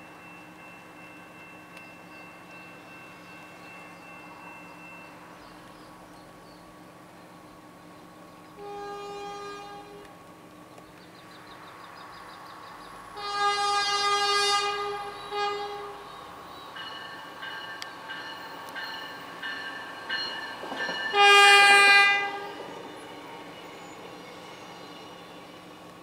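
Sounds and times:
crossing bell dinging: 0.0s - 5.6s, 14.7s - 22.6s
train horn blasts: 8.6s - 10.1s, 13.2s - 16.2s, 21.1s - 22.7s.

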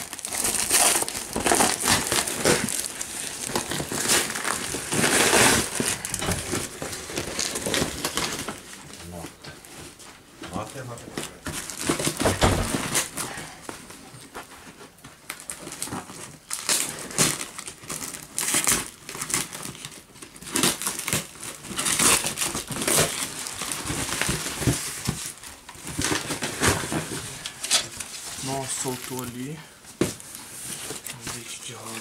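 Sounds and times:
cardboard box being torn open: 0.0s - 8.6s, 15.3s - 27.2s
plastic wrapping crinkling: 0.0s - 32.0s.

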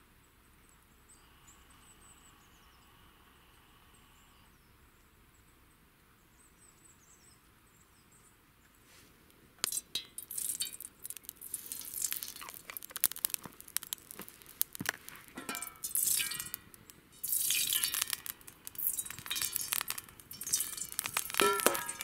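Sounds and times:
metal cookware clinking: 15.3s - 16.6s, 18.8s - 22.0s.

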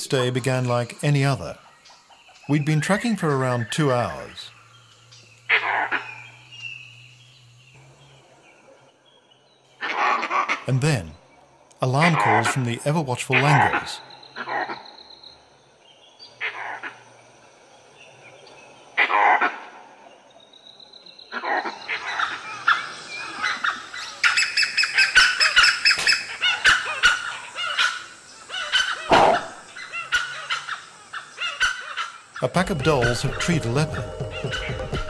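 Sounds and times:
harsh monkey alarm calls: 5.4s - 6.8s, 9.8s - 11.2s, 11.8s - 15.3s, 16.2s - 17.1s, 19.0s - 20.0s, 21.3s - 35.0s
deep animal call: 28.6s - 29.6s.

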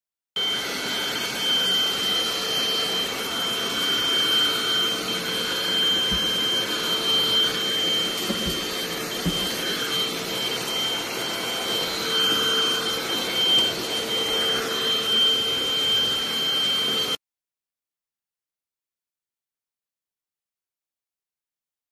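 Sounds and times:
stick vacuum cleaner running: 0.4s - 17.2s.

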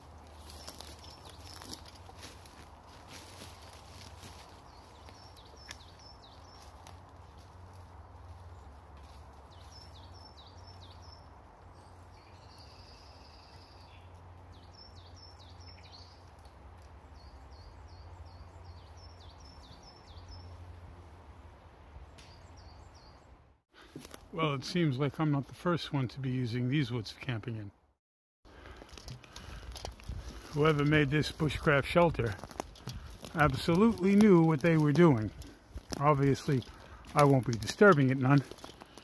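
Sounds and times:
songbirds singing: 0.0s - 20.8s, 22.0s - 23.9s, 28.5s - 39.0s.

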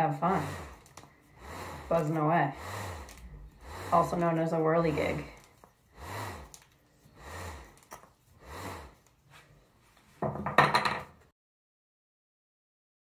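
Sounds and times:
whirligig toy buzzing: 0.1s - 9.0s.

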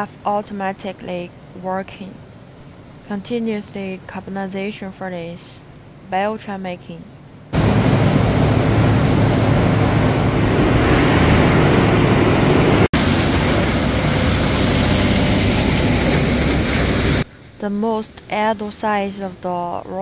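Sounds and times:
low hum: 7.0s - 17.7s
wood chipping machinery running: 7.6s - 17.2s.

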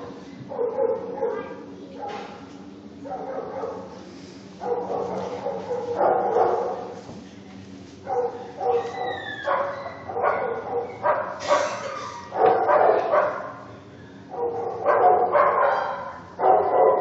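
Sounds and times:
dog barking and yowling: 8.1s - 13.6s, 14.3s - 17.0s
dog whining: 8.4s - 10.2s.

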